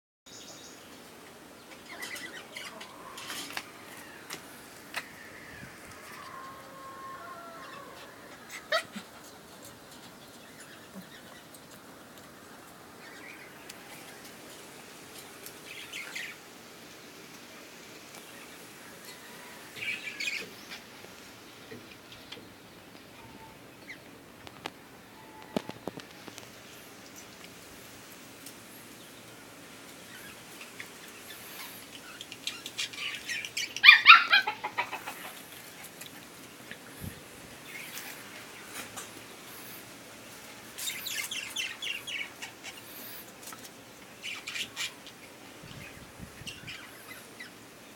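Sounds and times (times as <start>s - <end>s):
puppy yelping: 8.4s - 9.2s, 33.8s - 34.9s.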